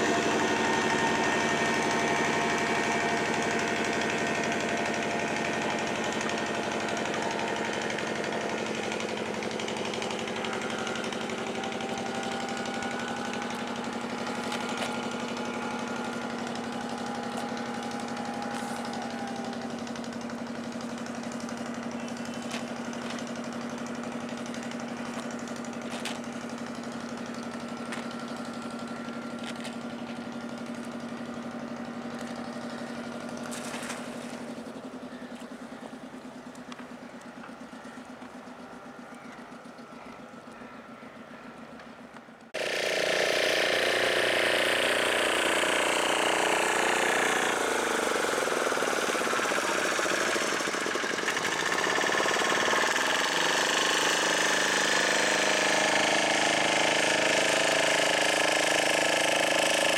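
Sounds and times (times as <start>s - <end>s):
boat engine humming: 0.0s - 59.9s.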